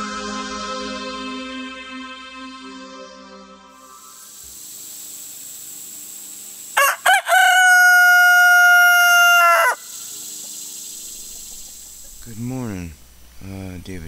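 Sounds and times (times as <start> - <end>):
rooster crowing: 6.8 - 10.1.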